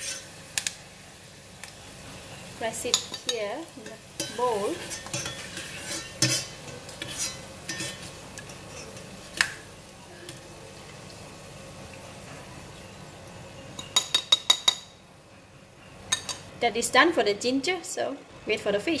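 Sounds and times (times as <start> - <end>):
metal skimmer scraping a pot: 4.7 - 9.1.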